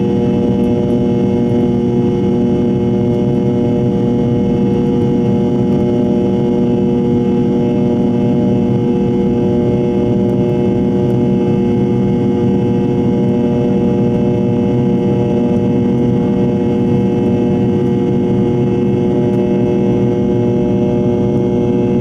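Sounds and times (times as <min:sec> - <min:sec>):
jet engine drone in cabin: 0:00.0 - 0:22.0.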